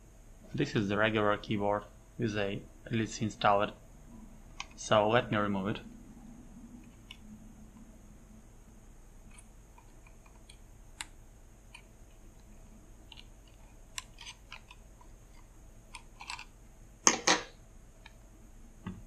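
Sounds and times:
small clicks and scrapes of tweezers: 13.1 - 16.5.

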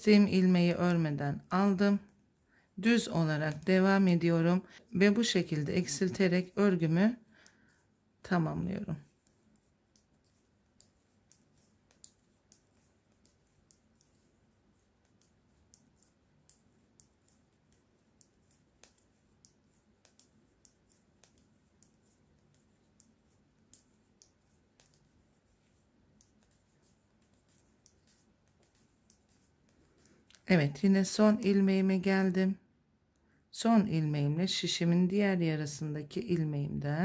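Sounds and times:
knitting needles clicking: 5.1 - 31.8.

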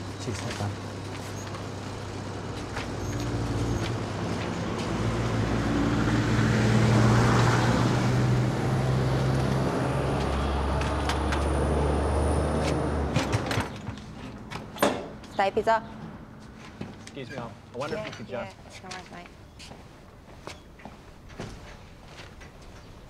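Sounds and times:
road noise: 0.0 - 23.0
heavy vehicle engine passing: 0.8 - 14.1.

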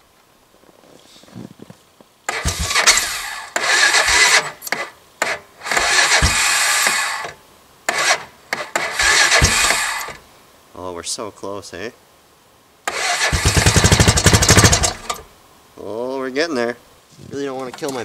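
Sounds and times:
electric starter cranking engine: 2.3 - 10.2, 12.9 - 15.3.

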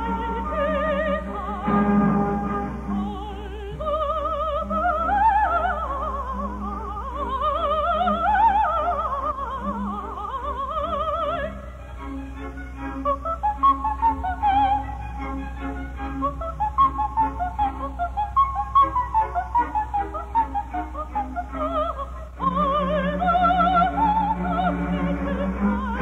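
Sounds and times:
orchestra playing: 0.0 - 5.3, 11.2 - 26.0
soprano singing opera: 0.0 - 26.0.

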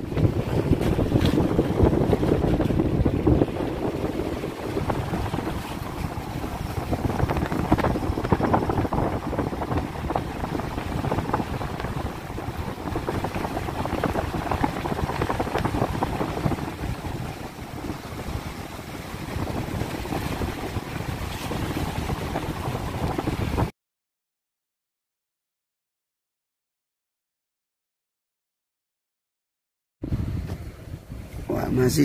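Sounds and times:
car road and engine rumble: 0.0 - 23.7, 30.0 - 32.0.

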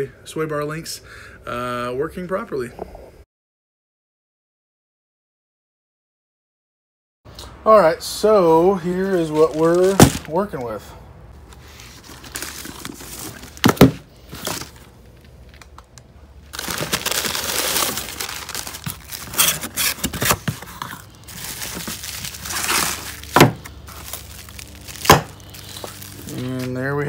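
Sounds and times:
plastic wrapping crinkling: 9.1 - 10.6, 11.5 - 27.0.

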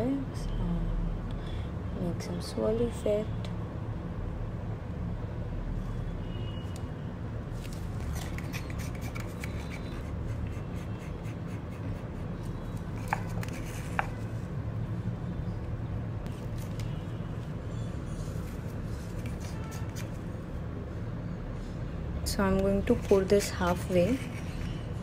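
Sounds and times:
stick scraping paper cup: 8.1 - 14.3.

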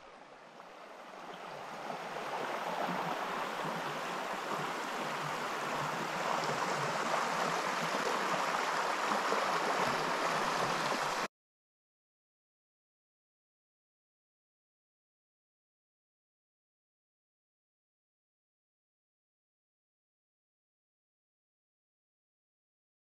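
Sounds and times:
water rushing over rocks: 0.0 - 11.3.

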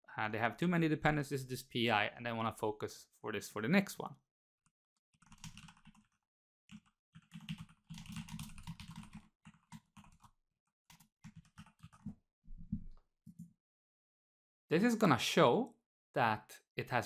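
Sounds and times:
typing on a keyboard: 5.1 - 10.3, 10.9 - 12.2.

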